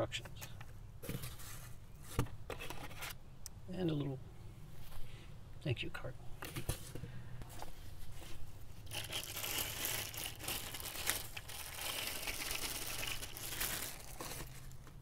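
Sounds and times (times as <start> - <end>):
plastic bag crinkling: 8.8 - 15.0.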